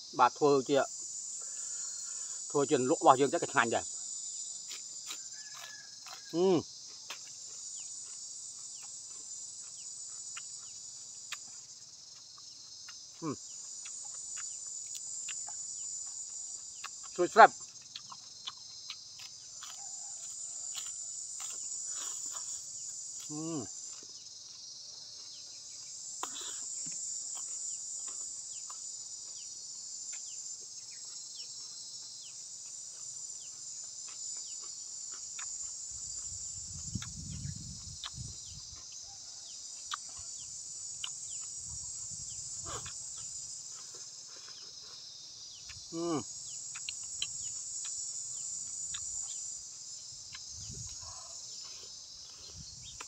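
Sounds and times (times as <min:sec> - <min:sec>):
insects chirring: 0:00.0 - 0:53.0.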